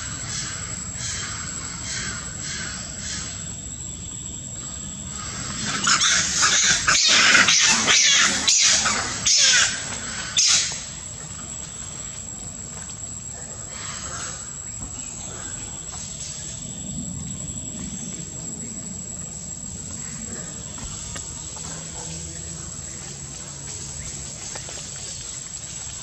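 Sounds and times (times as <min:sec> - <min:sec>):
high insect drone: 0:00.0 - 0:26.0
macaques screaming: 0:05.1 - 0:10.9.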